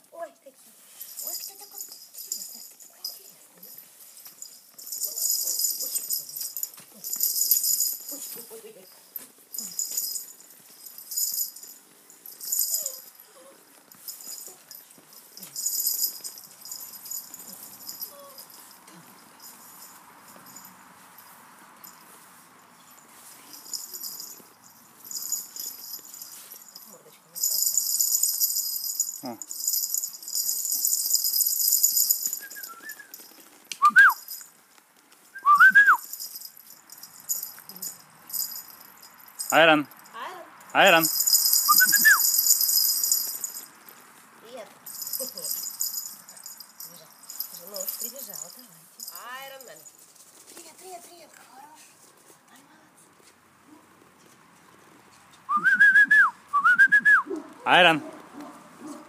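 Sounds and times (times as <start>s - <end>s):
jingling rattle shaken: 0.8s - 51.4s
keys jangling: 1.0s - 22.1s, 22.8s - 34.6s, 35.6s - 40.1s, 40.7s - 44.0s, 44.8s - 50.4s.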